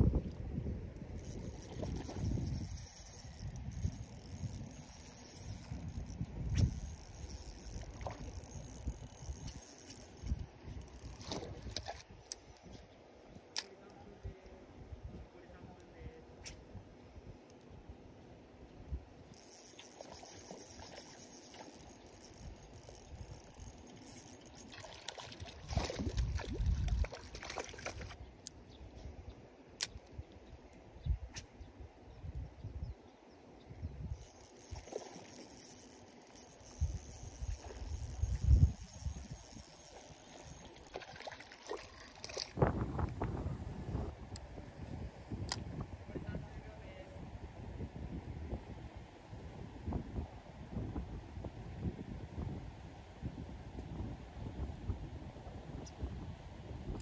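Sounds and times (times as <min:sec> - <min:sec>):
wind buffeting microphone: 0:00.0 - 0:12.8, 0:24.9 - 0:28.2, 0:36.4 - 0:57.0
small clicks: 0:01.0 - 0:13.8, 0:19.3 - 0:28.6, 0:34.2 - 0:42.6
water trickling and splashing: 0:01.2 - 0:12.2, 0:19.7 - 0:28.2, 0:34.2 - 0:42.6.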